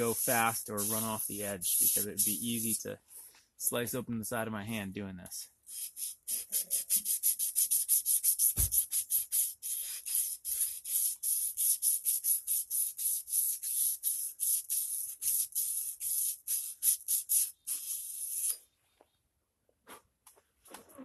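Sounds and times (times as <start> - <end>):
blade rubbing on sandpaper: 0.0 - 2.8, 5.7 - 18.6.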